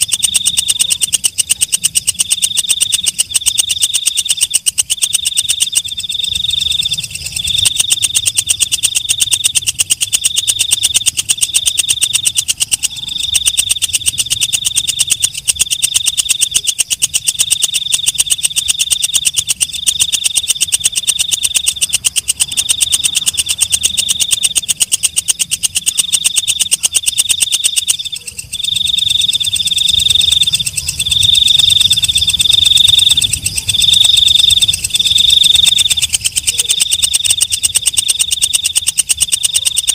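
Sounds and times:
katydid trilling: 0.0s - 39.9s.

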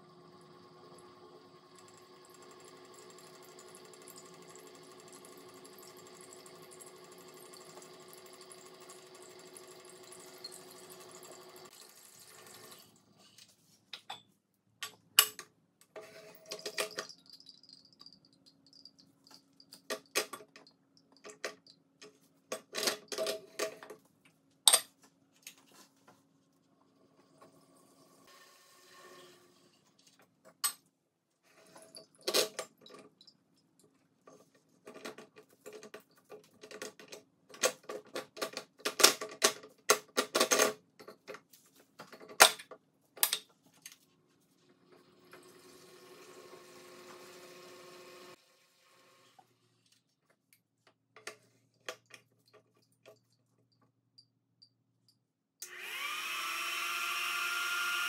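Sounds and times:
metal and glass clinking: 16.4s - 20.2s.

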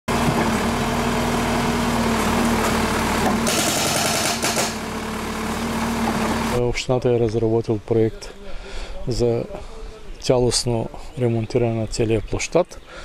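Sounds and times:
diesel engine running: 0.1s - 6.9s
hydraulic breaker hammering concrete: 3.2s - 4.9s.

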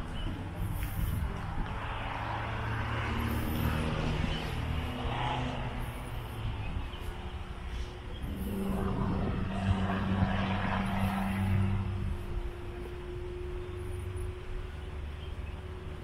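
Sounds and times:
vehicle engine humming: 0.0s - 16.0s.

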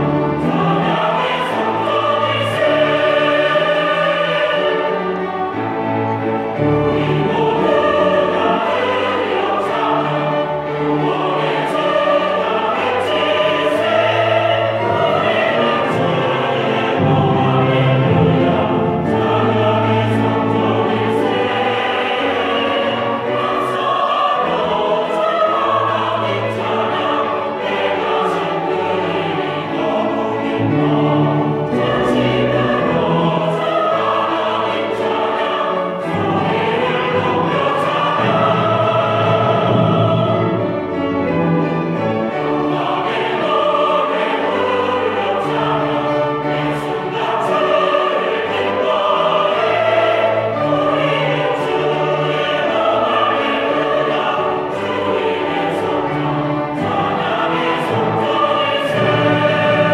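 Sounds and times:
church choir singing: 0.0s - 59.9s.

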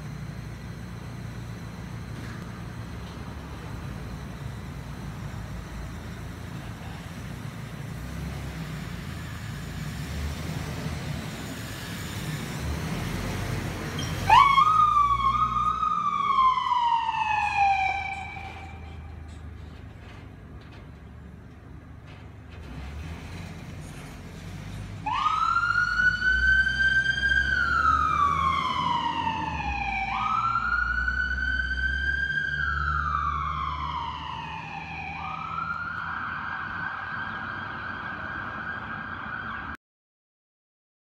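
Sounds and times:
ambulance engine running: 0.0s - 39.8s
ambulance siren wailing: 14.2s - 19.4s, 25.0s - 39.8s.

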